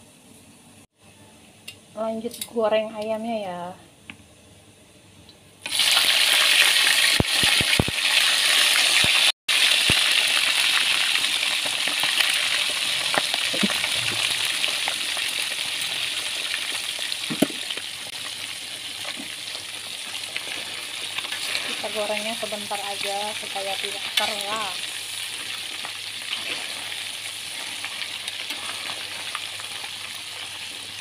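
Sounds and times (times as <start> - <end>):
chicken sizzling in hot oil: 5.6 - 31.0.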